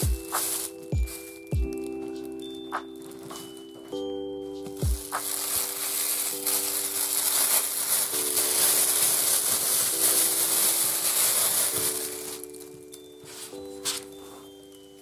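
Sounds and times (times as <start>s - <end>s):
plastic bag crinkling: 0.0s - 3.8s, 4.7s - 15.0s.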